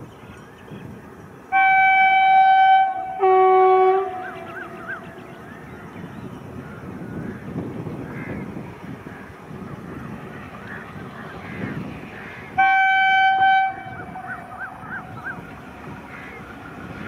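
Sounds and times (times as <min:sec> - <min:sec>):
locomotive horn blasts: 0:01.5 - 0:05.3, 0:12.6 - 0:15.2.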